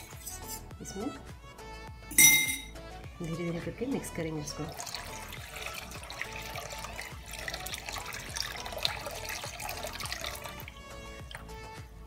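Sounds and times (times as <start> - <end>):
background music: 0.0 - 12.0
batter pouring into syrup: 4.4 - 11.9
syrup bubbling: 4.4 - 11.9.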